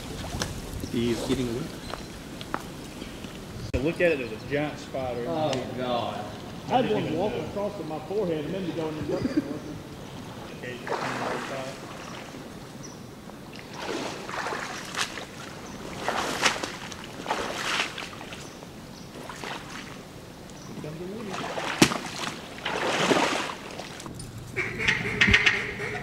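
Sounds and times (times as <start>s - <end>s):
splashing in shallow water: 0.0s - 2.4s, 9.8s - 24.6s.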